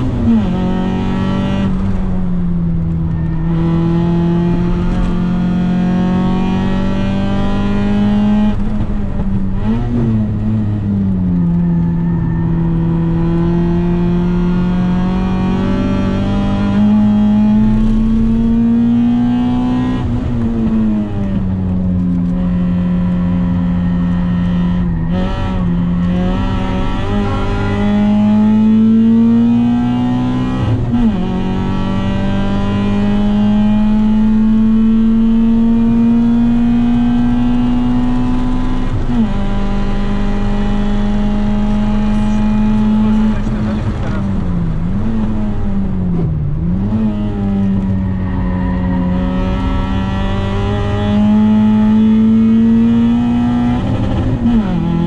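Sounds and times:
car engine at high revs: 0.0 - 55.0.

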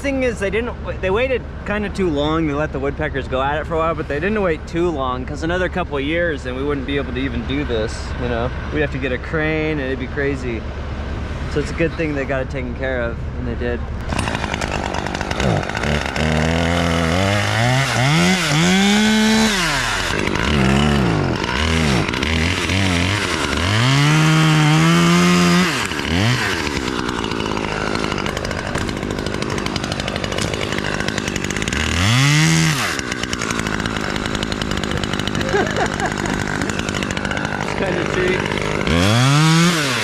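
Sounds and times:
chainsaw cutting wood: 14.0 - 40.0.

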